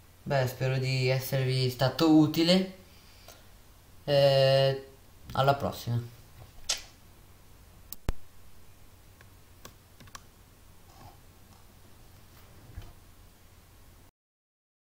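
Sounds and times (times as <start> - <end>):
computer mouse clicking: 9.2 - 10.3.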